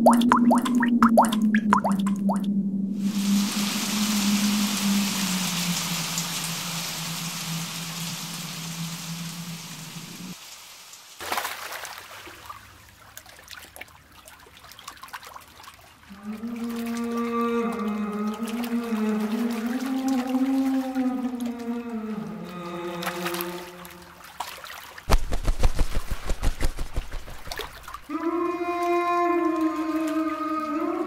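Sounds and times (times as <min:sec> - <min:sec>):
low held tone: 0:00.0 - 0:10.4
wavering synth tone: 0:00.0 - 0:10.4
faint crackling trickle: 0:00.0 - 0:25.2
hissing rain-like wash: 0:03.0 - 0:12.9, 0:25.0 - 0:28.1.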